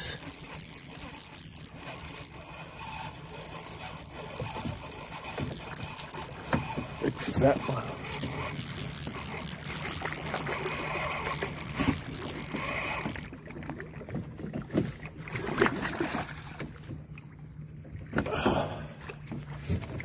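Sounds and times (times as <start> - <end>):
spinning reel whirring: 0.0 - 13.4.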